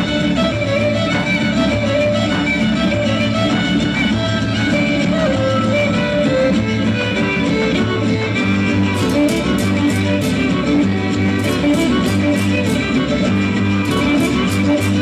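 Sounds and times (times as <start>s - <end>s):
folk dance music on guitars and violin: 0.0s - 15.0s
repeating bass line: 8.7s - 15.0s
sharp taps: 8.8s - 15.0s.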